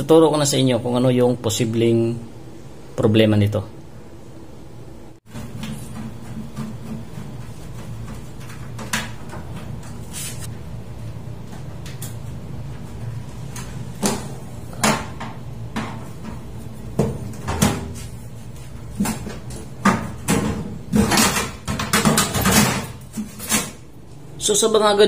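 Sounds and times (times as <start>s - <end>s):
steady low hum: 0.0s - 25.0s
knocks and metal scrapes: 18.8s - 23.9s.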